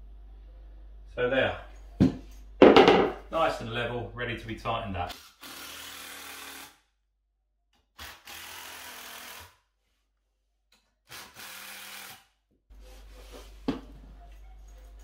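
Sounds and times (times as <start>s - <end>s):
cordless drill driving screws: 8.0s - 9.5s, 11.1s - 12.2s.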